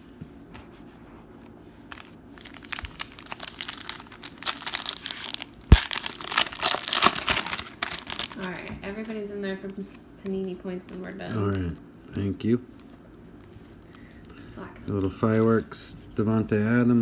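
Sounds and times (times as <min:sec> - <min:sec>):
foil wrapper crinkling and tearing: 0:02.4 - 0:08.6.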